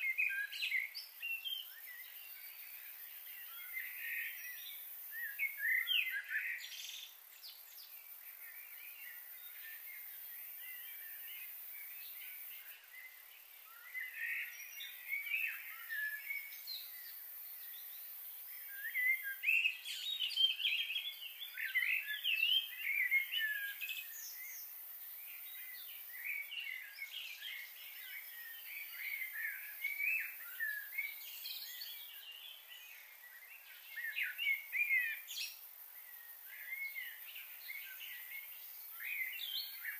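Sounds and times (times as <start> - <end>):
small birds chirping: 0.0 - 39.9.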